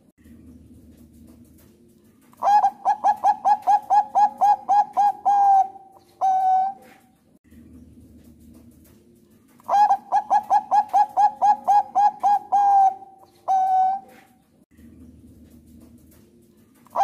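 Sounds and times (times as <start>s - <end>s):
dove cooing: 2.4s - 7.1s, 9.5s - 14.3s.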